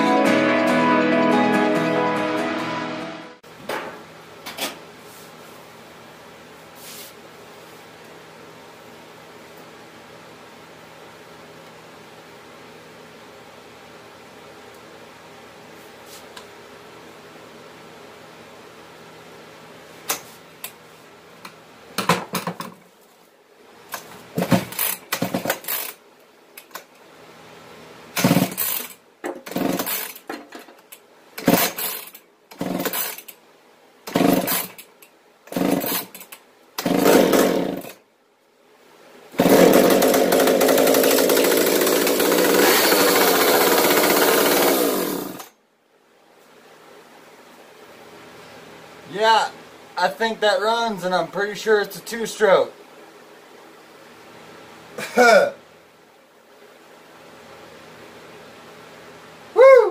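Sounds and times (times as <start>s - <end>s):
chainsaw being pull-started: 24.4s - 26.0s, 28.2s - 30.3s, 31.4s - 33.3s, 34.1s - 34.9s, 35.5s - 38.0s, 39.4s - 45.5s
chainsaw engine running: 29.5s - 30.1s, 34.1s - 34.7s, 35.5s - 36.1s, 36.8s - 37.9s, 39.4s - 45.5s.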